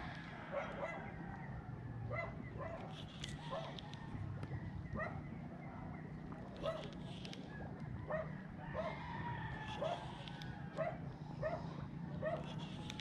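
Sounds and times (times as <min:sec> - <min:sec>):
dog barking: 0:00.5 - 0:01.0, 0:02.1 - 0:03.8, 0:05.0 - 0:05.2, 0:06.6 - 0:06.9, 0:08.1 - 0:09.0, 0:09.8 - 0:10.0, 0:10.8 - 0:12.7.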